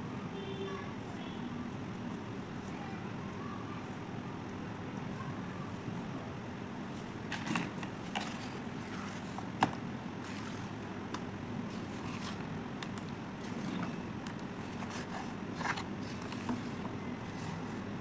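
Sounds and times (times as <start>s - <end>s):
steady background noise: 0.0s - 18.0s
hand scraping wet paste: 14.6s - 17.9s.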